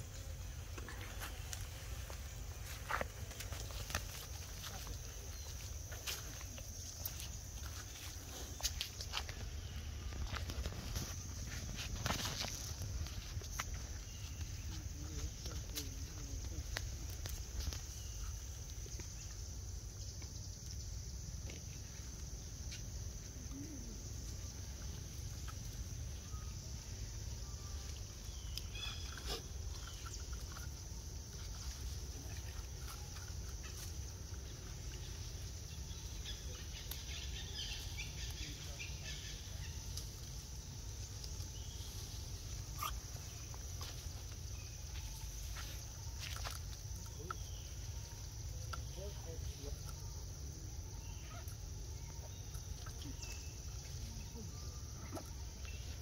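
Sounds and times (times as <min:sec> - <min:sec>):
high insect drone: 0:00.0 - 0:56.0
rustles and clicks in leaf litter: 0:00.6 - 0:19.3
faint animal calls: 0:50.7 - 0:56.0.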